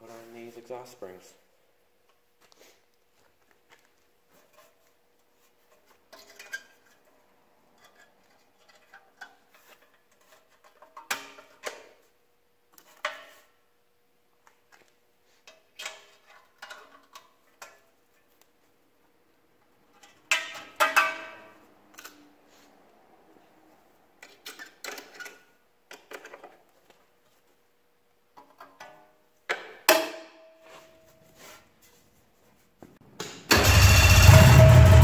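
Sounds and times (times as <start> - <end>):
metal clanks: 33.2 - 35.0.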